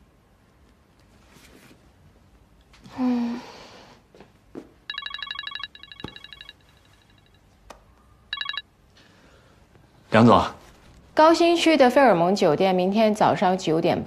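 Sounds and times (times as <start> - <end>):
phone ringing with electronic trill: 4.9 - 7.4, 8.3 - 8.6.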